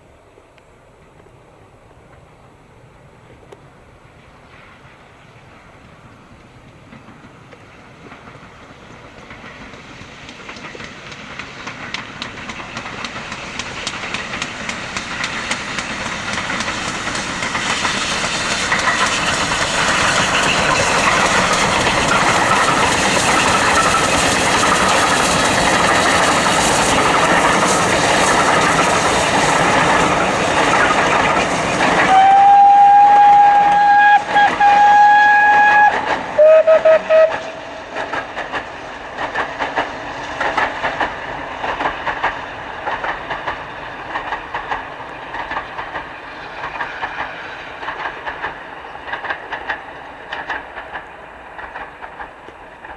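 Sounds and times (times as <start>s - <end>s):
steam locomotive passing: 0.0s - 52.9s
wheels clattering over rail joints: 6.4s - 34.9s, 37.1s - 52.9s
train whistle: 32.0s - 37.8s.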